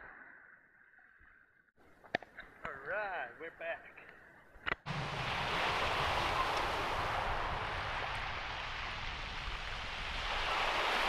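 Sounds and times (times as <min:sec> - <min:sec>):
low surf rumble: 0:04.9 - 0:11.0
waves hissing on shingle: 0:04.9 - 0:11.0.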